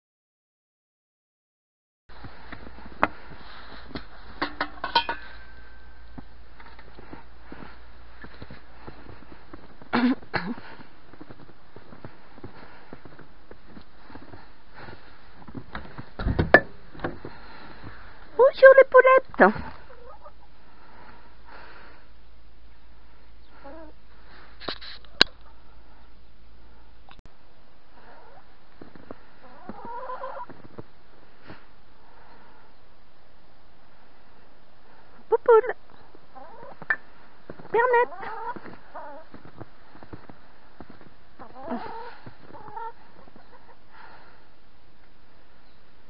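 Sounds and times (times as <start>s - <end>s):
hens clucking softly: 19.6s - 20.6s, 23.4s - 24.0s, 28.0s - 28.5s, 29.4s - 30.6s, 36.2s - 37.0s, 38.0s - 39.3s, 41.4s - 43.9s.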